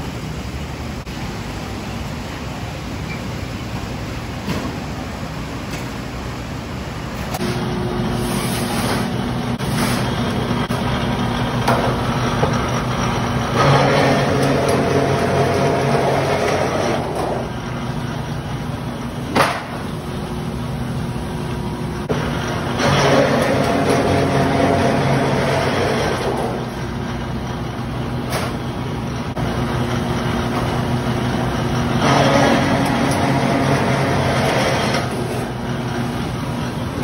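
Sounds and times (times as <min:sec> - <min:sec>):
machine motor hum: 0:03.6 - 0:37.0
sheet metal rolling through rollers: 0:07.4 - 0:18.2, 0:22.0 - 0:28.2, 0:29.1 - 0:37.0.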